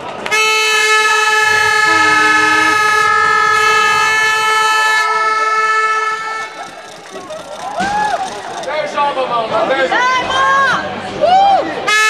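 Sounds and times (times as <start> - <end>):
lower horn: 0.2 - 7.0
air horn long note: 0.3 - 6.8.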